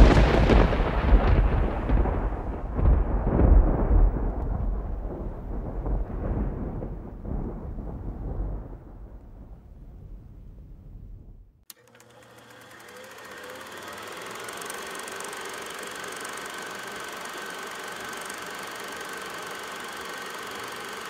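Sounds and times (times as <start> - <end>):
rolling thunder: 0.0 - 11.5.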